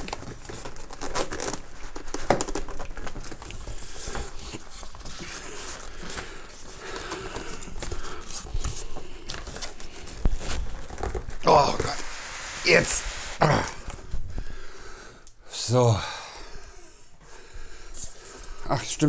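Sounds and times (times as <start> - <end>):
cardboard scraping and crinkling: 0.0 - 14.2.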